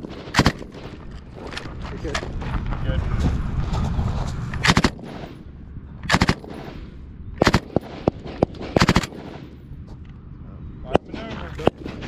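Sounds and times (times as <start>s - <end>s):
single gunshots: 0.0s - 1.0s, 4.6s - 5.4s, 6.1s - 6.8s, 7.4s - 9.6s
machine gun bursts: 4.7s - 5.2s, 6.1s - 6.6s, 7.4s - 9.4s.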